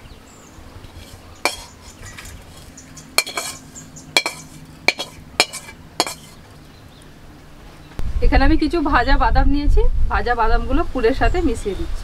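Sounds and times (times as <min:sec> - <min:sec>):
spatula scraping pan: 0:00.9 - 0:06.4
metal spatula clinking on steel pan: 0:01.0 - 0:06.4.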